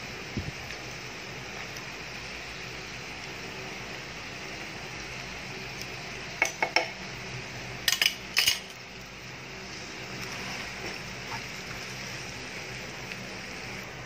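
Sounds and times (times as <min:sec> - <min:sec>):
meat and vegetables sizzling in a pan: 0:00.0 - 0:14.0
utensils clinking against cookware: 0:07.9 - 0:08.8.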